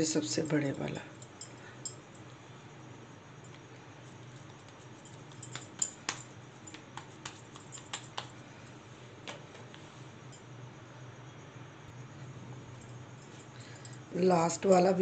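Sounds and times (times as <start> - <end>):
faint low hum: 0.0 - 15.0
hands tapping dough: 4.7 - 8.4.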